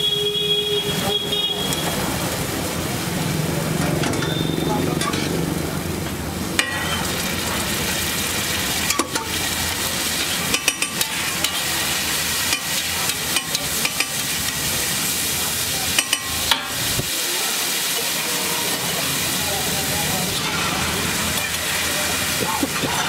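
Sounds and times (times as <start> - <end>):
food sizzling on a griddle: 0.7 - 23.0
metal spatula scraping a griddle: 18.0 - 19.3, 19.9 - 23.0.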